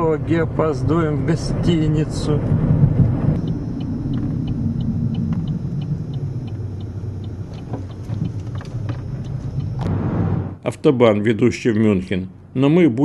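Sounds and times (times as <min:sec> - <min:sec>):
car tyres and engine rumble: 0:00.0 - 0:10.6
faint regular ticking: 0:03.4 - 0:09.8.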